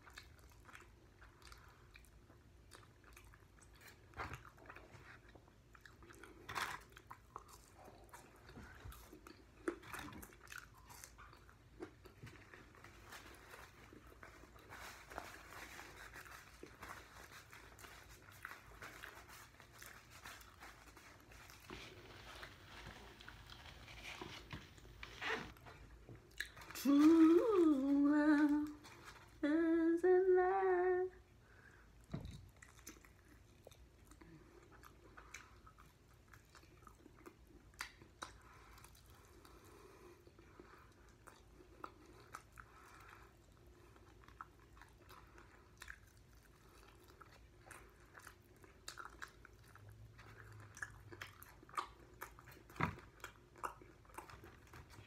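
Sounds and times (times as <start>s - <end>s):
chewing and crunching food: 0.0s - 29.4s, 31.1s - 55.0s
woman humming: 26.8s - 31.2s.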